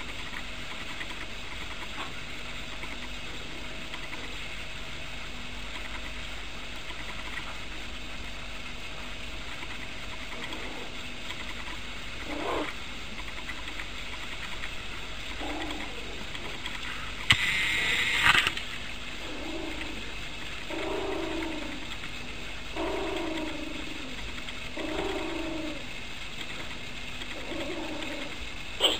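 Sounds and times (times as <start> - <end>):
steady background hiss: 0.0 - 28.9
puppy vocalizing: 9.5 - 14.7, 15.3 - 16.8, 22.8 - 25.9, 27.2 - 28.9.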